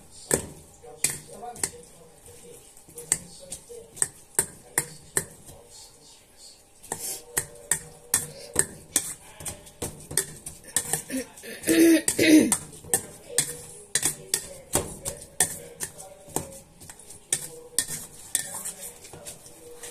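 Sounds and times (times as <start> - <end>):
potato masher clinking in metal bowl: 12.0 - 18.9.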